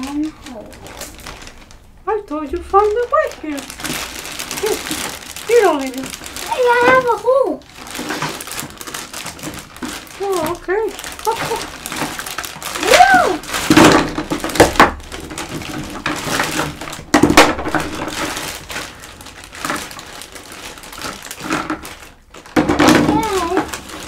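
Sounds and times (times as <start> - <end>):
plastic packaging crinkling: 0.0 - 24.0
plastic toy pieces knocking and clicking: 7.8 - 18.6, 20.9 - 24.0.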